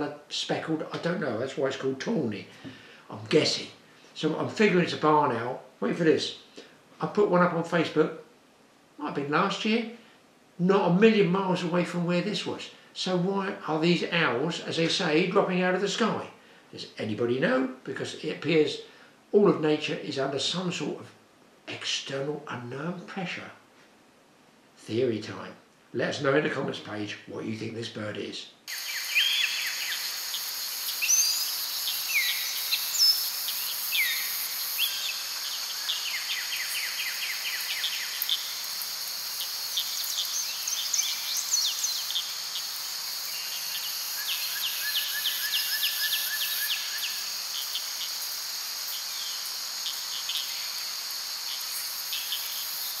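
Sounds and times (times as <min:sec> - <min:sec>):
steady high hiss: 0:00.0 - 0:53.0
songbirds singing: 0:28.7 - 0:53.0.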